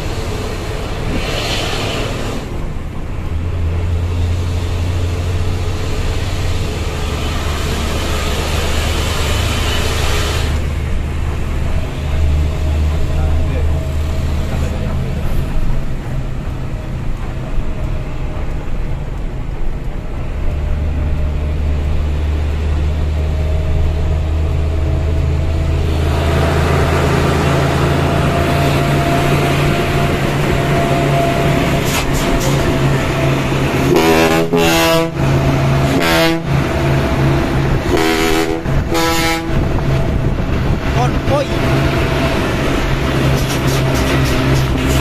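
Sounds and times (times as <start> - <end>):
diesel truck engine running: 0.0 - 45.0
truck horn blasts: 33.8 - 37.2, 37.8 - 39.8.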